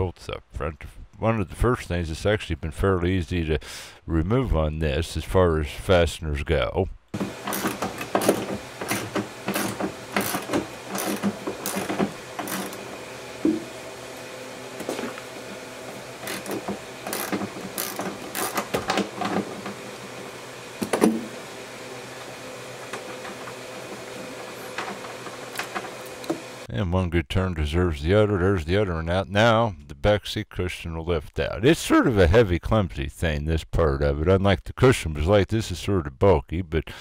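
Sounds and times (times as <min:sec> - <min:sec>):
ratchet clicking: 0:07.2 - 0:12.8, 0:16.2 - 0:19.4.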